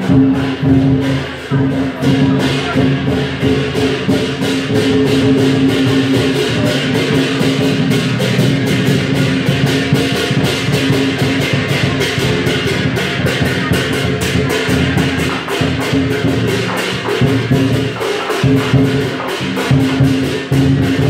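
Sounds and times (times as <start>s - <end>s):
cymbals clashing: 0.0s - 21.0s
large drum beating: 0.0s - 21.0s.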